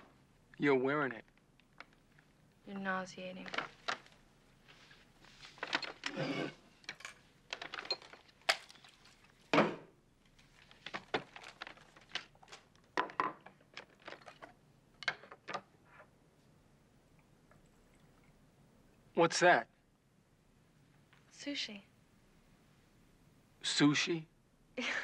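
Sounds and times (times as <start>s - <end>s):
items set down on table: 5.4s - 9.9s, 10.6s - 15.7s
thud on table: 9.5s - 9.9s.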